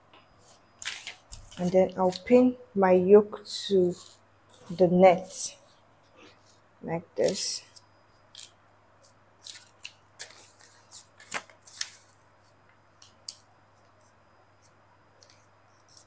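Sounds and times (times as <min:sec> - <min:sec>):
paper and fabric rustling: 0:00.4 - 0:02.5, 0:07.2 - 0:12.6.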